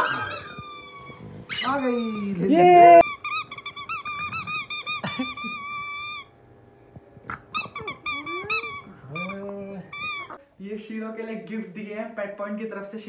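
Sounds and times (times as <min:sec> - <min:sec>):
squeaky dog toy squeaking: 0:00.0 - 0:02.4, 0:03.0 - 0:06.4, 0:07.3 - 0:10.4.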